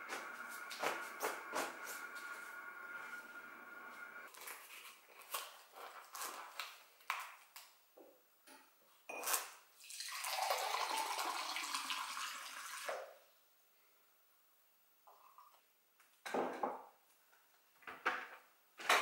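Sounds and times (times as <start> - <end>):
water running into a glass: 9.8 - 13.1.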